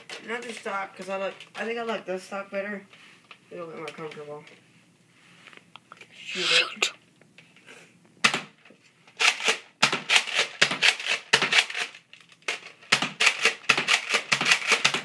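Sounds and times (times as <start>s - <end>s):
toy blaster plastic clacks and pops: 8.2s - 15.0s.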